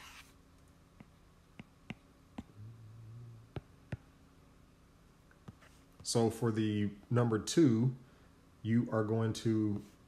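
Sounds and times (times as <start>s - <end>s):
brief low hum: 2.5s - 3.6s.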